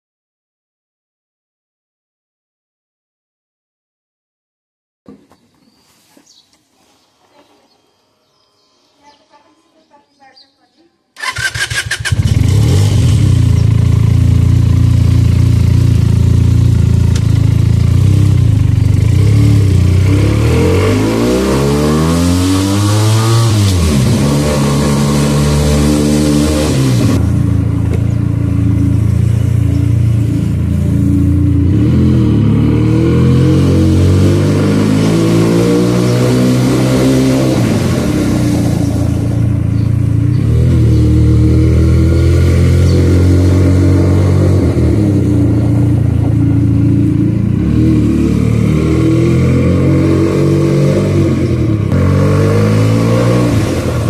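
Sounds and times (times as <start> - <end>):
motorcycle engine revving: 11.2 - 54.0.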